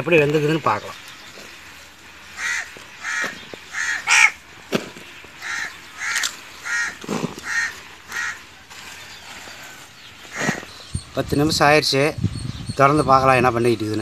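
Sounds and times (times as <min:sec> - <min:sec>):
crow cawing: 0:02.3 - 0:04.5, 0:05.3 - 0:08.6, 0:10.2 - 0:10.7.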